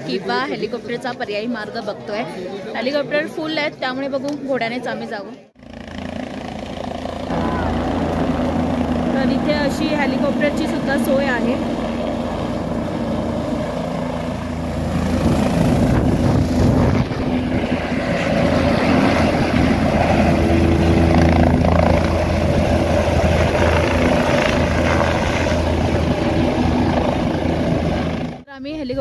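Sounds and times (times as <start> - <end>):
helicopter rotor and engine drone: 5.5 - 28.9.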